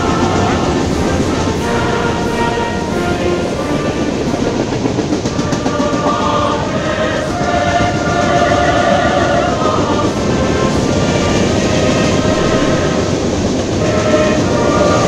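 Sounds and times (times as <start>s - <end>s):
freight train wheels rumbling on rails: 0.0s - 15.0s
steady pitched tones: 0.0s - 15.0s
wheels clicking over rail joints: 0.0s - 15.0s.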